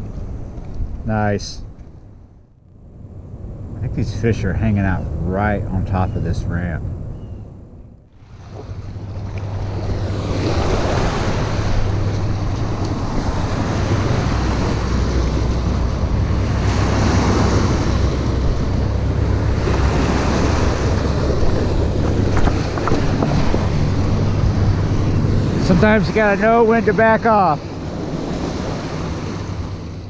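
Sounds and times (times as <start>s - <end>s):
steady low rumble: 0.0s - 30.0s
waves splashing against rocks: 8.2s - 30.0s.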